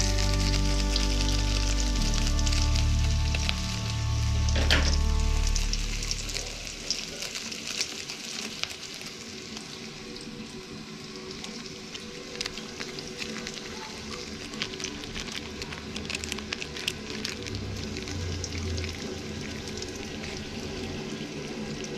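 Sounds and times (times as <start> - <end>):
background music: 0.0 - 7.1
food sizzling in oil: 0.0 - 21.9.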